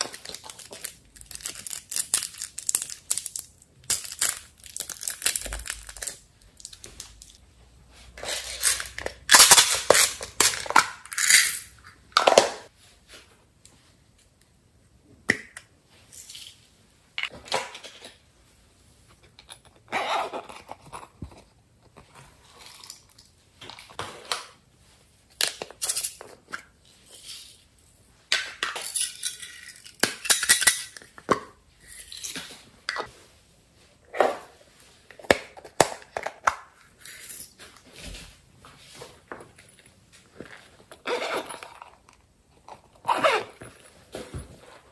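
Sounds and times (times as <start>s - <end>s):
beads rattling in plastic containers: 0.0s - 7.4s, 8.2s - 12.4s.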